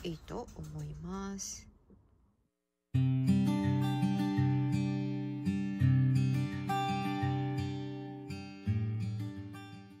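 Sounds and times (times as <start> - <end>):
acoustic guitar music: 2.9 - 10.0.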